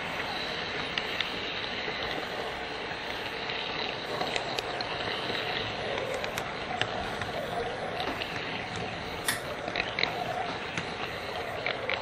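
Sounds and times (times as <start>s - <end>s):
model train wheels and motor rushing: 0.0s - 12.0s
sharp clicks of track: 3.1s - 7.4s.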